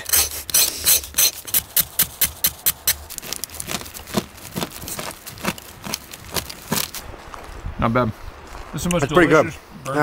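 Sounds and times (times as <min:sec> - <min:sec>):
knife scraping burnt crust: 0:00.0 - 0:07.0.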